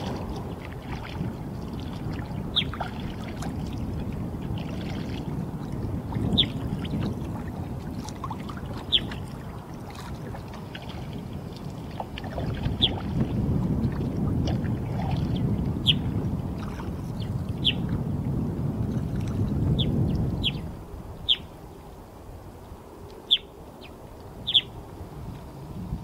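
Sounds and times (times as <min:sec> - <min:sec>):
water sloshing around kayak: 0:00.0 - 0:22.8
bird chirps: 0:23.3 - 0:24.7.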